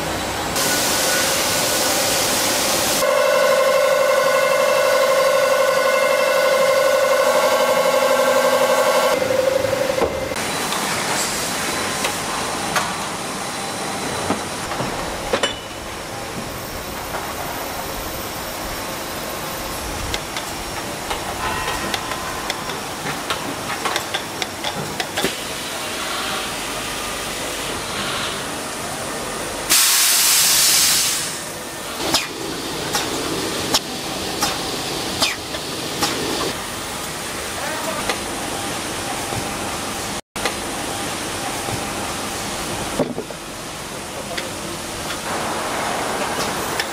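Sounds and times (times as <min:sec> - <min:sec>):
machinery hissing: 0:00.5 - 0:03.1, 0:25.3 - 0:36.5.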